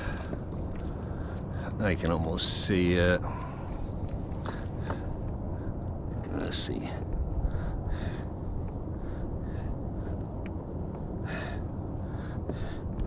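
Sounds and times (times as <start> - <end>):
wind rumble on microphone: 0.0 - 13.0.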